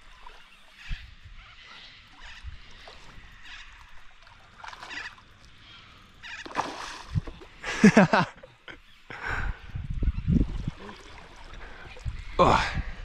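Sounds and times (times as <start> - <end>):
fish thrashing water: 6.4 - 7.6.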